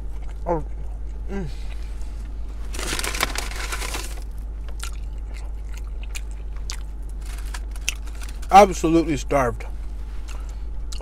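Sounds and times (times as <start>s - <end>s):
steady low hum: 0.0s - 11.0s
person chewing food: 2.7s - 8.5s.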